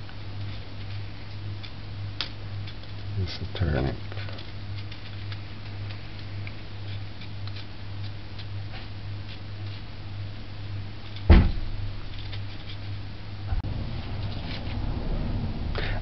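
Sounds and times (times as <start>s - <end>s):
steady low hum: 0.0s - 16.0s
knife scraping turnip skin: 4.2s - 9.9s
loud thump: 11.3s - 11.8s.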